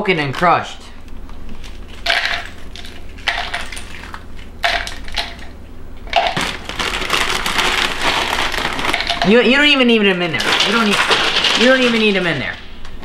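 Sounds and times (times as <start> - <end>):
crackers being crushed: 1.3 - 13.0
foil crinkling: 6.2 - 12.6.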